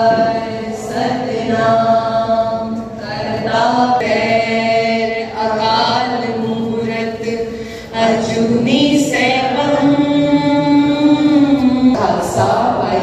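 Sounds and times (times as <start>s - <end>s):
group singing a chant in unison: 0.0s - 13.0s.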